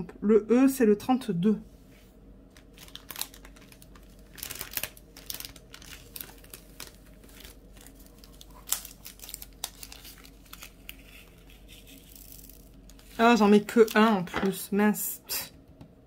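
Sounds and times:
plastic film crinkling: 0:02.5 - 0:14.5.

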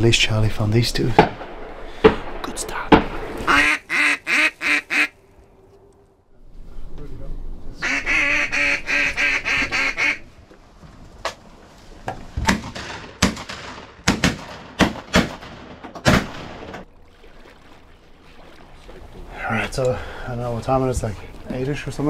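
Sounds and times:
duck quacking: 0:03.5 - 0:05.2, 0:07.8 - 0:10.2
shotgun blasts: 0:12.5 - 0:16.8.

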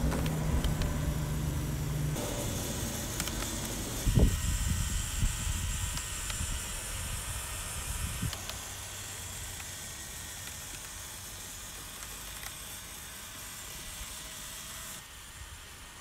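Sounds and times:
low rumble: 0:00.0 - 0:02.7.

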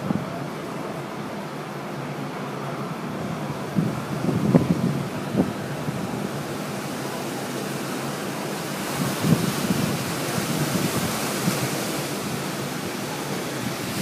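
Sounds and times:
wind buffeting microphone: 0:03.1 - 0:06.9, 0:08.6 - 0:14.0
strong storm wind rushing: 0:03.2 - 0:06.7, 0:08.7 - 0:14.0.

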